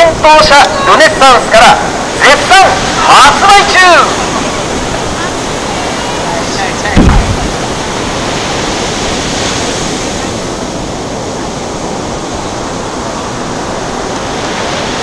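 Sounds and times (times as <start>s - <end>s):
surf: 0.0s - 15.0s
wind: 0.0s - 15.0s.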